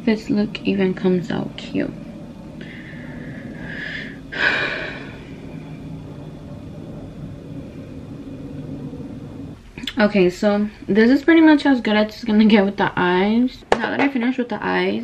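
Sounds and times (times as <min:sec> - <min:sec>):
steady low hum: 0:00.0 - 0:15.0
breathy exhalations: 0:02.6 - 0:05.9.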